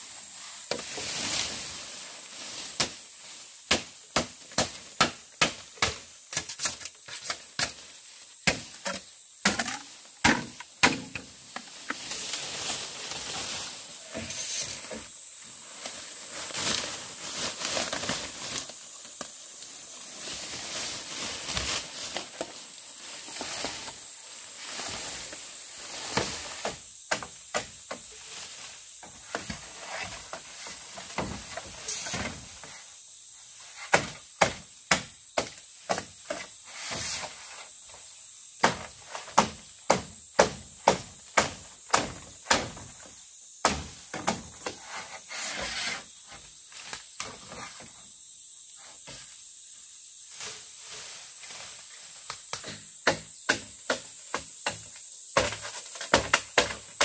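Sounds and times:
steady high hiss: 0.0 - 57.0
hand tool chopping: 3.7 - 7.8, 8.4 - 11.3, 38.6 - 42.8, 52.5 - 57.0.

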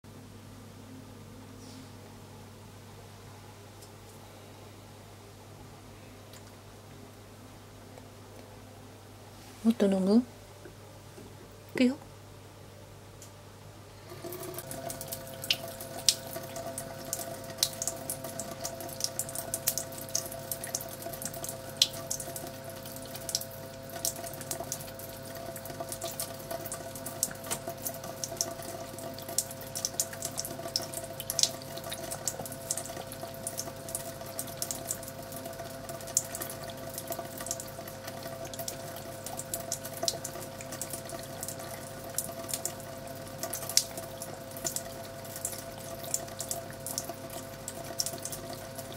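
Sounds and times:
water running from tap: 14.1 - 48.9.

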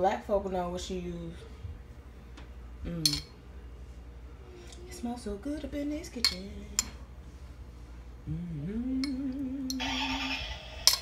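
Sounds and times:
person humming: 2.8 - 3.2, 8.2 - 10.4.

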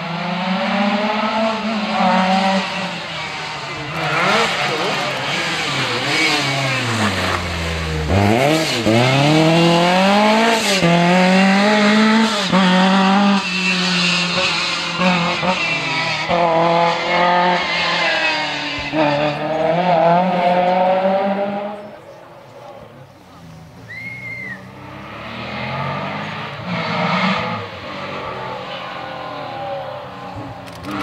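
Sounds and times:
rally car engine revving: 0.0 - 31.0
quick gear changes: 30.3 - 31.0.

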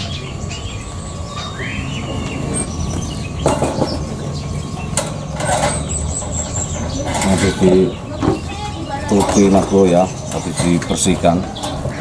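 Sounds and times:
bird chirp: 0.0 - 12.0
steady low hum: 0.0 - 12.0
wire birdcage clicking and rattling: 4.9 - 7.8, 9.1 - 12.0.

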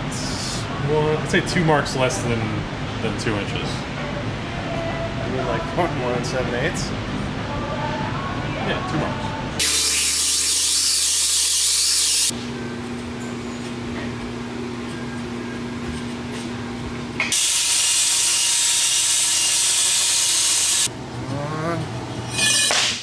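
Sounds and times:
belt grinder grinding steel: 9.6 - 12.3, 17.3 - 20.9
steady low hum: 12.3 - 17.3, 20.8 - 22.5.

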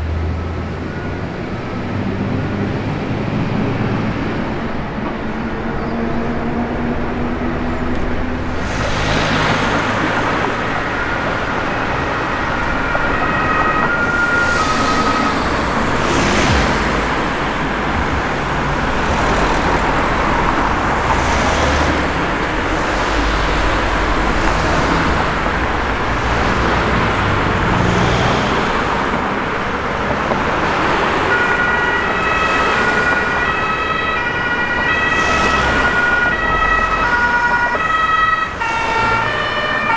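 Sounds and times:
vehicle engine and road noise: 0.0 - 39.9
two-tone emergency siren: 9.1 - 27.4, 28.0 - 39.9.

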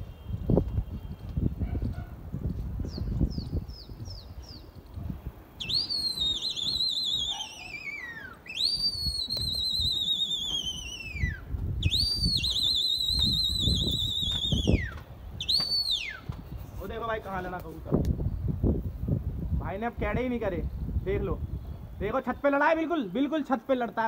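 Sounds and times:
wind rumbling on microphone: 0.0 - 22.5
person whistling: 5.6 - 16.3.

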